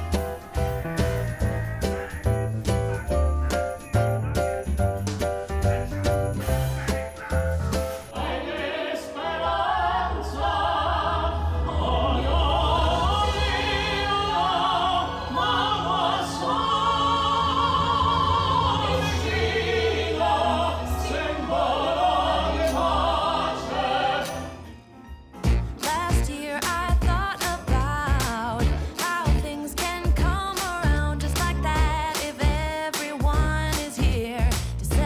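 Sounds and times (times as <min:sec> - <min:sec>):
low orchestral accompaniment: 0:07.6 - 0:25.8
woman singing operatically: 0:25.8 - 0:35.0.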